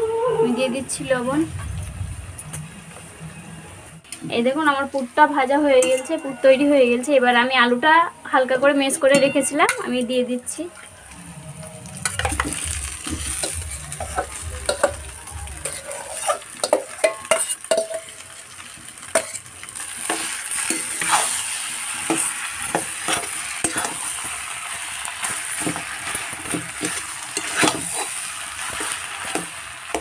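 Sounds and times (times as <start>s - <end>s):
frying sizzle: 0.1s - 30.0s
metal spatula scraping a pan: 10.8s - 30.0s.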